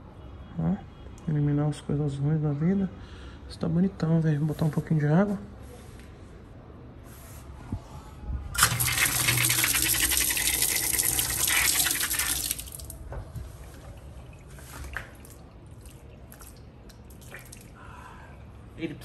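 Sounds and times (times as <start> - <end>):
water running in a stream: 8.6 - 17.8.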